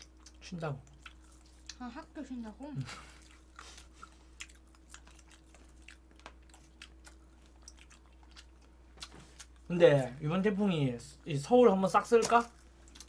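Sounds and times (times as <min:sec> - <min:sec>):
close-up chewing: 0:00.0 - 0:02.1, 0:02.8 - 0:09.7, 0:12.5 - 0:13.0
low steady hum: 0:00.0 - 0:13.0.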